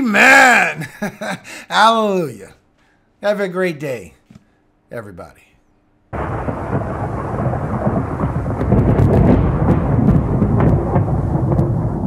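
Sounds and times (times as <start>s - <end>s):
steady rain: 6.2s - 12.0s
thunder: 6.2s - 12.0s.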